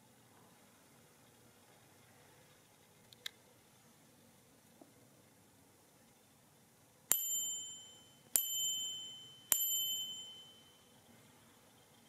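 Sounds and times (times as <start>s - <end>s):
small metal bell ringing: 7.1s - 11.0s.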